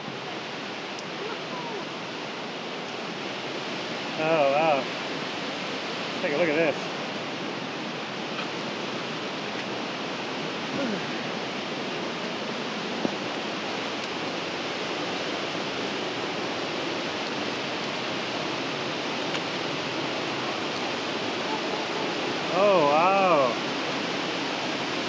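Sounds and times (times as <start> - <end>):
waterfall rushing: 0.0 - 25.0.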